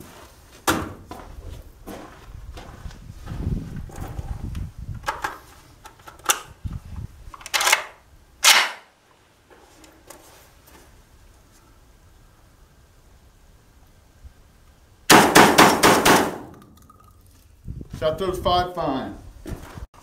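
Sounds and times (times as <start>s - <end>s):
shotgun bolt and magazine clacking: 7.4s - 8.8s.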